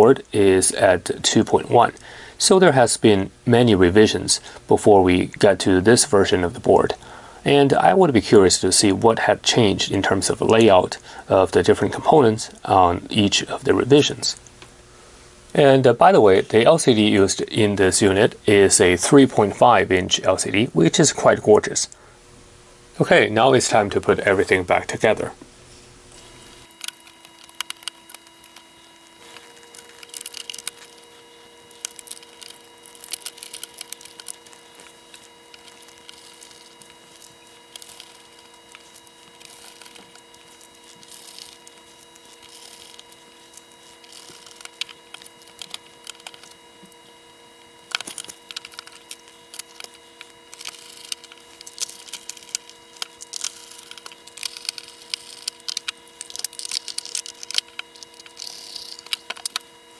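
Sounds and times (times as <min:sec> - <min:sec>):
screwdriver screwing: 0:26.2 - 0:59.6.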